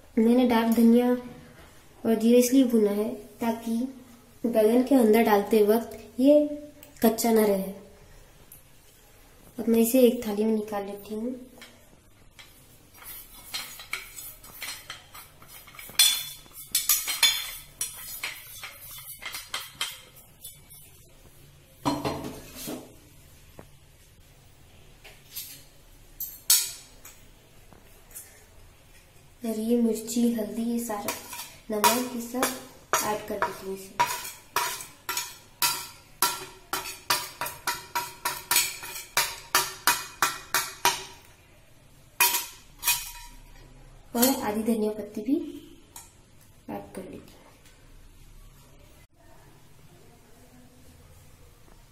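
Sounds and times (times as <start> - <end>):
spoon clinking on steel plate: 12.4 - 20.6, 31.1 - 41.3, 42.2 - 43.5.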